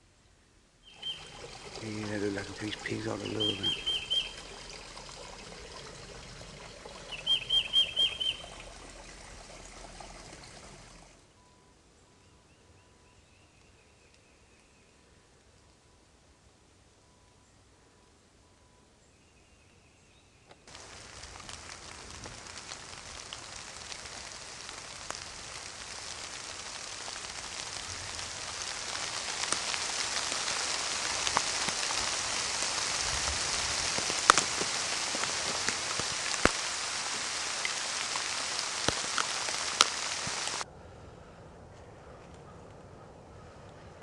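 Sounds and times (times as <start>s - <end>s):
heavy rain hissing: 0.8s - 11.2s, 20.7s - 40.6s
raindrops tapping: 0.9s - 11.2s, 20.7s - 40.6s.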